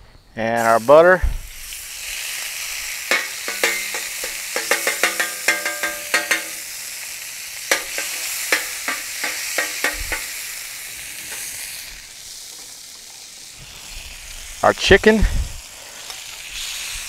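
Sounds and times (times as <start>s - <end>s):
butter and oil sizzling: 0.5s - 17.0s
metal spatula clinking and scraping: 3.1s - 6.7s, 7.7s - 10.4s.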